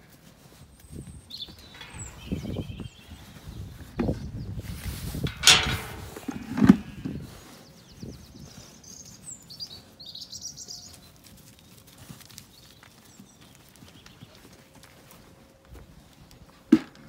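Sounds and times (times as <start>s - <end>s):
hooves stepping on soft ground: 0.0s - 17.0s
birds chirping: 0.9s - 4.6s.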